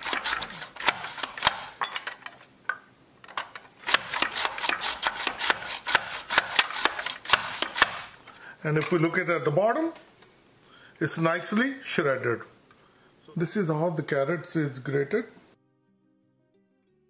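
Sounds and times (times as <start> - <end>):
carrot rasping on grater: 0.0 - 1.7, 3.9 - 8.0.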